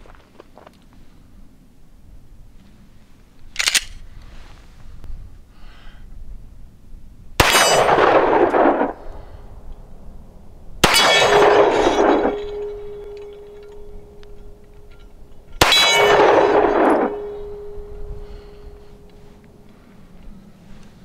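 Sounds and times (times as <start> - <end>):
steel plate target ringing: 7.4 - 9.0, 10.8 - 19.3
pistol shots: 7.4 - 9.1, 10.8 - 14.4, 15.6 - 18.5.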